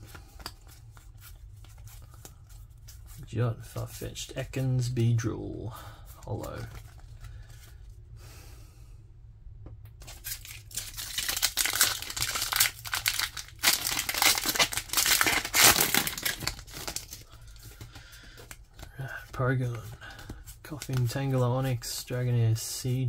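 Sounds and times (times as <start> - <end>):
foil wrapper tearing and crinkling: 10.0 - 17.3.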